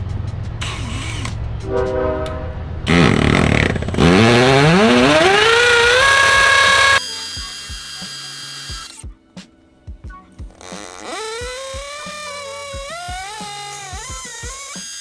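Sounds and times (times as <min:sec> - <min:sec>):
cordless drill boring into wall: 0:03.1 - 0:09.0, 0:10.6 - 0:15.0.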